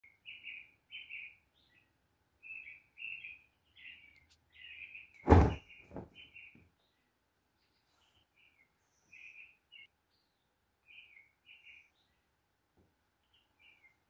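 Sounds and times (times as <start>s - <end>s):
small birds chirping: 0.0s - 14.0s
loud thump: 5.2s - 6.1s.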